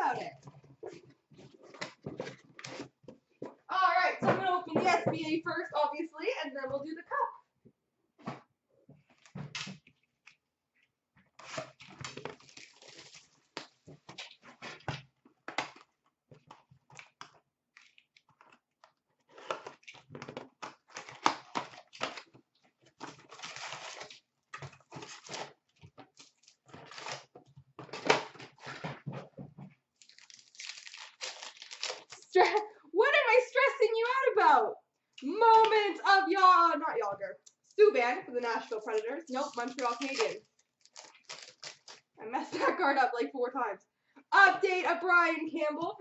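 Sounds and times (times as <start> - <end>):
shrink wrap and cardboard tearing: 11.4 - 14.8, 17.0 - 22.4, 23.0 - 28.8, 30.0 - 32.4, 38.7 - 42.1
foil packs crinkling: 11.6 - 13.8, 23.0 - 27.3, 30.0 - 32.4, 38.7 - 42.1.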